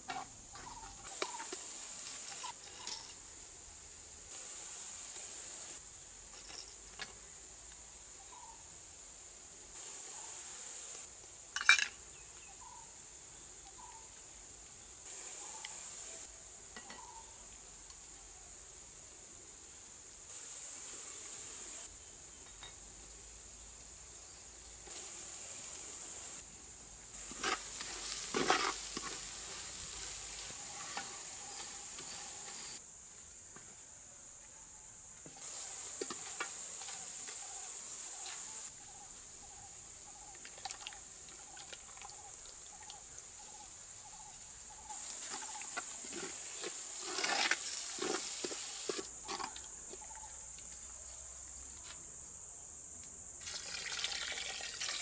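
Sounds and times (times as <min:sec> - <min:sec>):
wooden spoon scraping clay pot: 0:27.2 - 0:32.8, 0:45.2 - 0:49.6
insect chirring: 0:27.2 - 0:33.0, 0:35.4 - 0:55.0.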